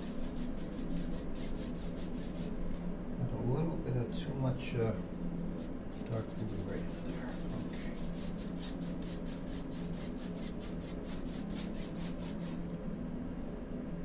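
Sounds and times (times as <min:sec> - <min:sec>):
paintbrush scratching on canvas: 0:00.0 - 0:02.6, 0:05.6 - 0:12.7
steady low hum: 0:00.0 - 0:14.0.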